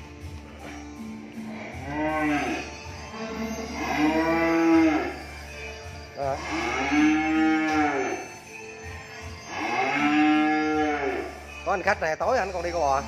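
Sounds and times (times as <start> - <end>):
cattle mooing: 0.8 - 5.4, 6.2 - 8.4, 9.0 - 11.5.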